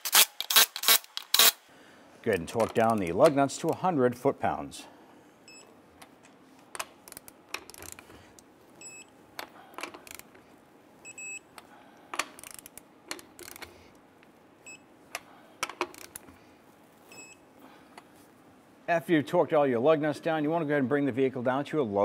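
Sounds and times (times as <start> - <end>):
torque wrench clicking: 0.0 - 1.6, 6.7 - 8.1, 9.8 - 10.4, 12.2 - 13.7, 15.6 - 16.3.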